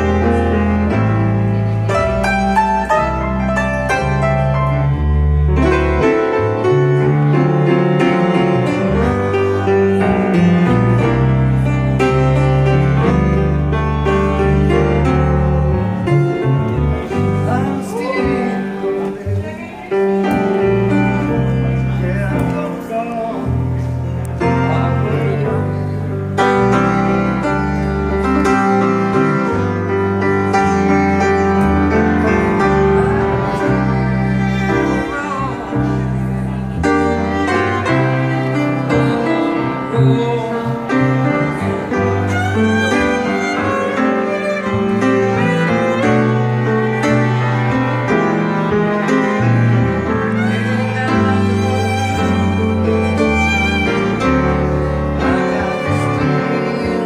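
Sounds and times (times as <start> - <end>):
piano: 0.0 - 57.0
plucked upright bass: 0.0 - 57.0.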